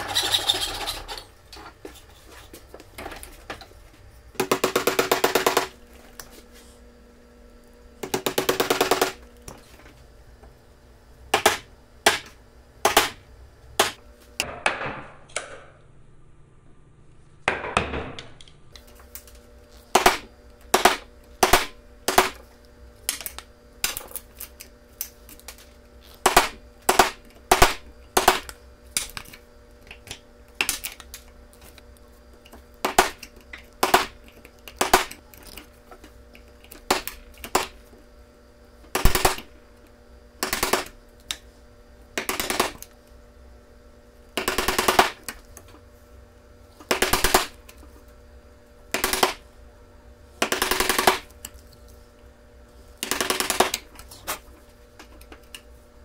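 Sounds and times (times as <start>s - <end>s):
chisel scraping wood: 0.0s - 1.3s.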